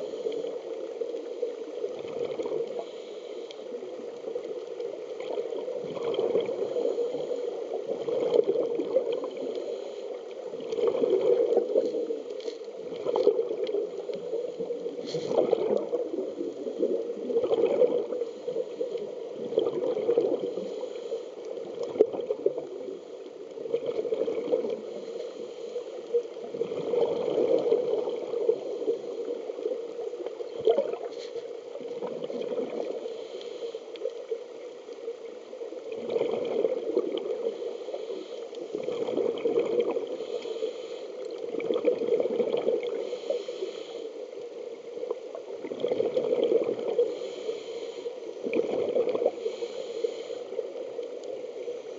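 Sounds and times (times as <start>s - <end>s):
underwater regulator breathing bubbles: 14.9s - 16.0s.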